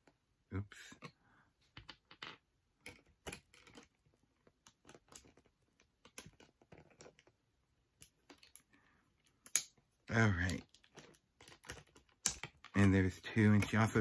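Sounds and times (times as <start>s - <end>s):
plastic packaging clicking and crinkling: 2.9s - 7.4s, 8.0s - 14.0s.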